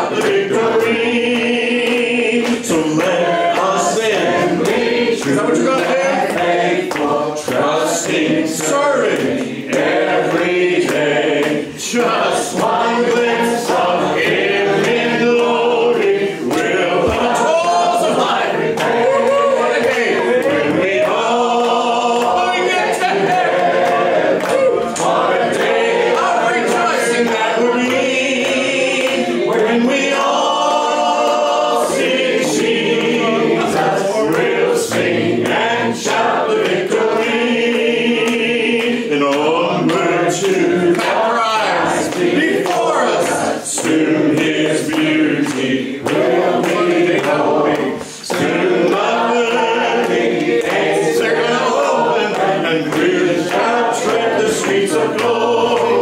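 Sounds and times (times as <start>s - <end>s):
man singing into a microphone: 0.0s - 6.5s
congregation singing a hymn: 0.0s - 56.0s.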